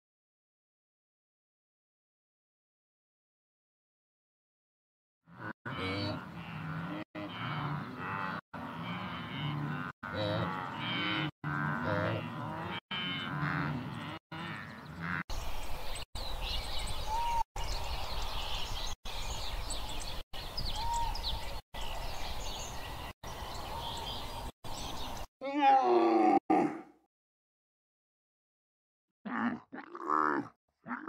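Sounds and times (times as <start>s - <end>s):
bird chirps: 13.9s - 25.3s
wildebeest moaning grunts: 29.3s - 31.0s.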